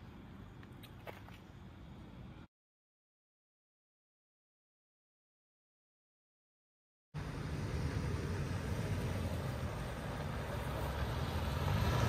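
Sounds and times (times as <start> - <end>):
car engine rumble: 7.2 - 12.0.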